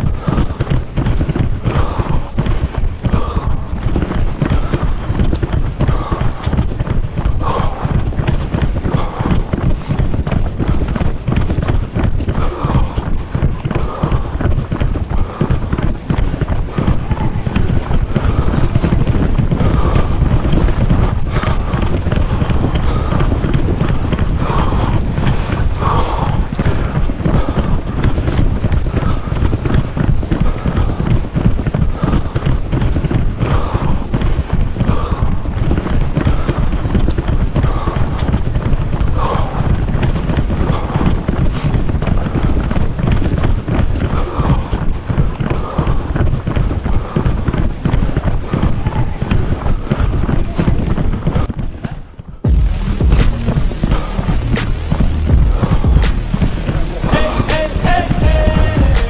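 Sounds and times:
wind and handling on microphone: 0.0 - 54.6
running footfalls on asphalt: 0.0 - 58.9.

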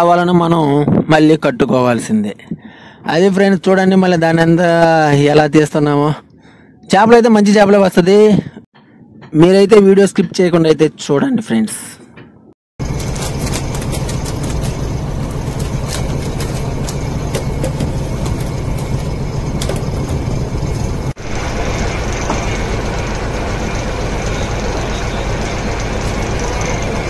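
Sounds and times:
boat engine humming: 12.8 - 27.0.

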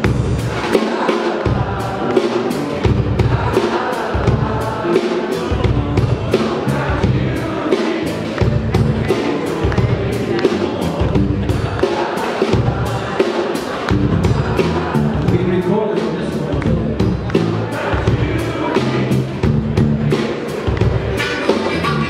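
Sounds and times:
steady drumbeat: 0.0 - 22.0
electric bass guitar: 1.5 - 3.4, 4.2 - 11.8, 13.9 - 15.6, 16.4 - 22.0.

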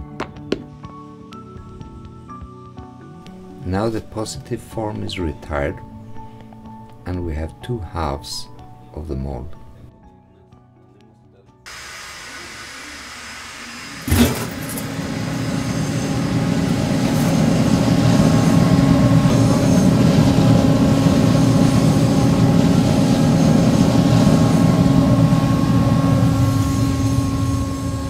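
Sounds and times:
furnace burner roaring: 11.7 - 28.0.

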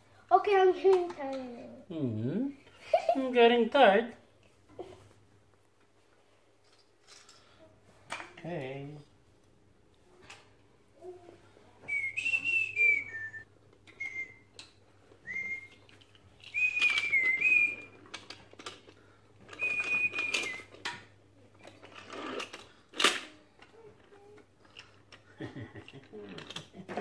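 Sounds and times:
person whistling: 11.9 - 14.5, 15.2 - 15.8, 16.4 - 18.0, 19.6 - 20.7
wooden toy track clacks: 16.4 - 21.0.

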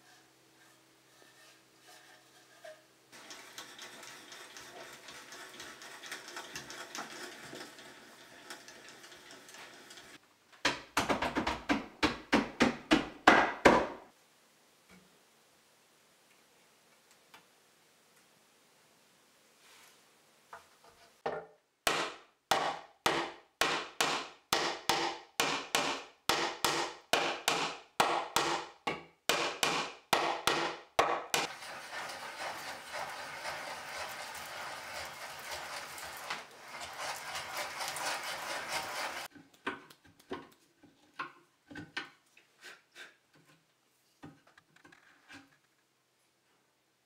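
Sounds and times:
hammer striking wooden pegs: 21.9 - 31.5.

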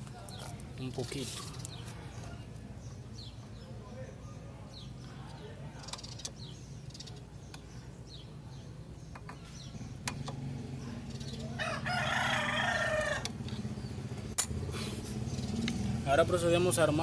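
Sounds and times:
rooster crowing: 11.4 - 13.4.

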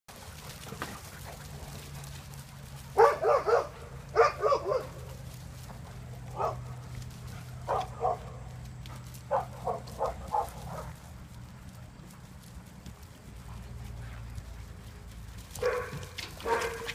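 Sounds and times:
dog barking: 3.0 - 5.1, 6.3 - 6.7, 7.7 - 8.3, 9.3 - 11.0, 15.6 - 16.9.

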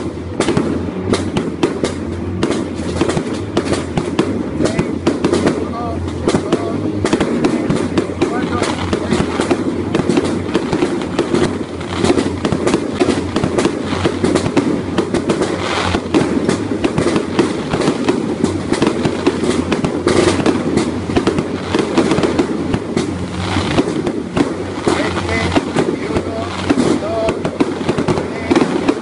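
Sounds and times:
fireworks crackling and banging: 0.0 - 29.0.

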